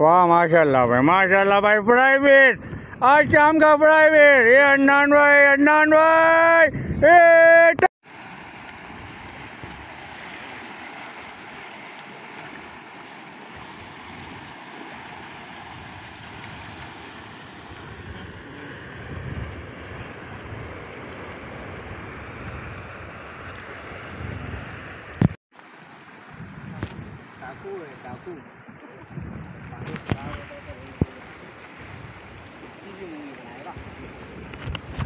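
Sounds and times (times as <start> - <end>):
wind buffeting microphone: 2.4 - 4.5, 6.3 - 7.3, 8.3 - 11.7, 12.6 - 25.4, 26.2 - 35.0
sea waves washing ashore: 7.2 - 35.0.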